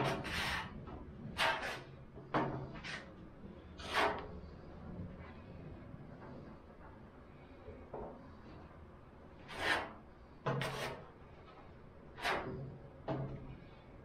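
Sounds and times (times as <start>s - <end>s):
spreader scraping body filler: 0.0s - 4.5s, 9.4s - 12.7s.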